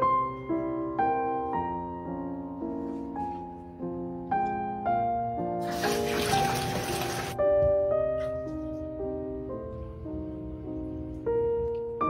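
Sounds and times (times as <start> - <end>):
soft piano music: 0.0 - 12.0
water splashing into bathtub: 5.6 - 7.4.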